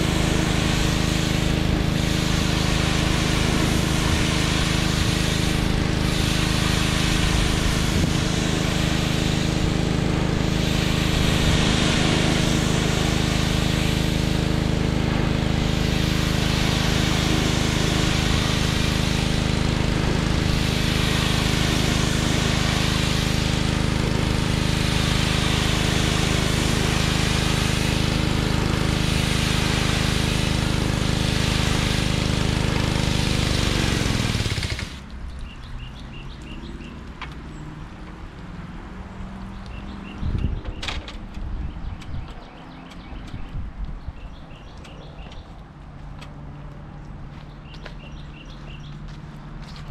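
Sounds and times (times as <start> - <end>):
water spray hissing on wood: 0.0 - 37.0
pressure washer engine running: 0.0 - 37.2, 39.1 - 49.9.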